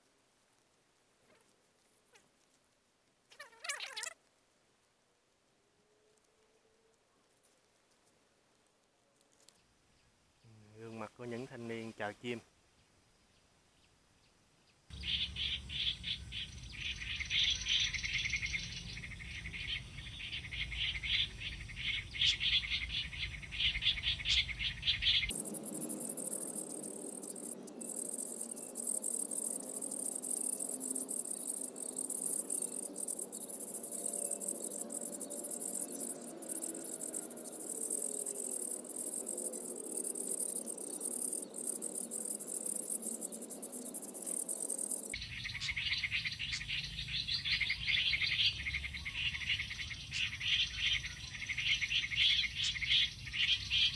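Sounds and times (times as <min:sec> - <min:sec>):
faint bird calls: 0:03.3 - 0:04.2, 0:14.9 - 0:53.9
rapid bird chirping: 0:14.9 - 0:53.9
shrill insect chorus: 0:14.9 - 0:53.9.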